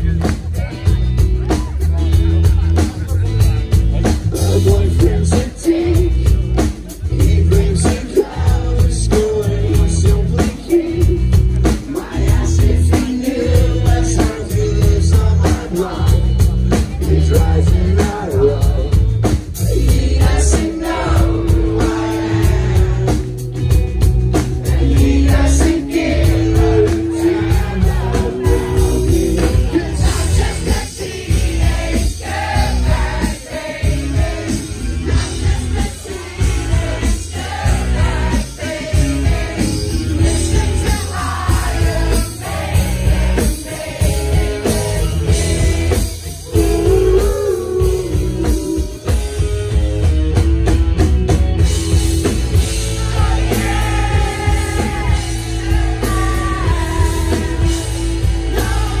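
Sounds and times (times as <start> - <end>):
live band playing amplified music: 0.0 - 59.0
person singing: 46.2 - 49.3.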